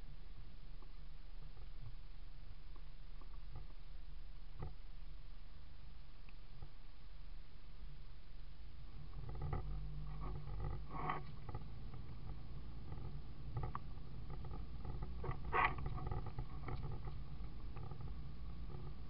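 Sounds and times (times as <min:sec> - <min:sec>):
engine and road rumble in cabin: 0:08.8 - 0:19.0.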